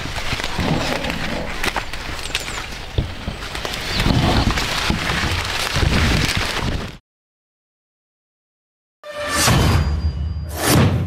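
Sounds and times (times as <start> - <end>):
corn leaves rustling: 0.0 - 7.0.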